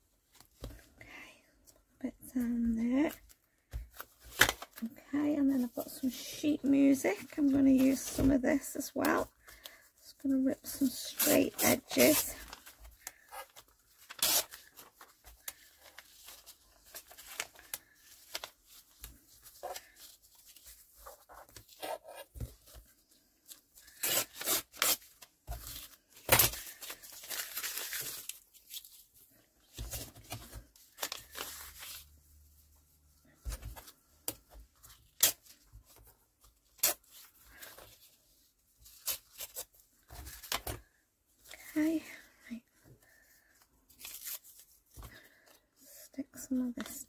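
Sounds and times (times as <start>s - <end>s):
paper rustling: 10.6s - 40.9s
paper tearing: 14.0s - 14.8s.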